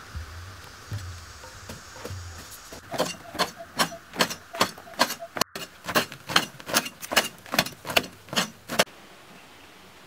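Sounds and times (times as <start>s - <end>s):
digging tool chopping hard earth: 0.9s - 8.9s.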